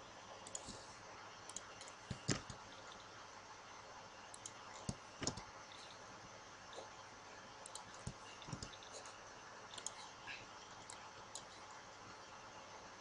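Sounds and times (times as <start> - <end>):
faint room hiss: 0.0 - 13.0
mouse and keyboard clicks: 4.4 - 5.5, 7.7 - 9.0.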